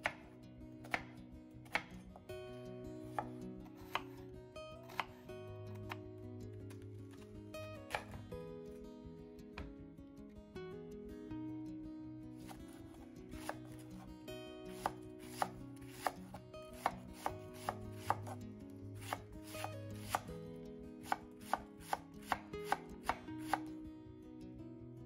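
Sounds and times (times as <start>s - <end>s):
knife chopping on wooden board: 0.0s - 0.2s, 0.8s - 1.1s, 1.7s - 2.0s, 3.1s - 4.1s, 4.9s - 5.1s, 7.9s - 8.2s, 13.4s - 13.6s, 14.7s - 16.2s, 16.8s - 18.4s, 19.0s - 20.3s, 21.1s - 23.6s.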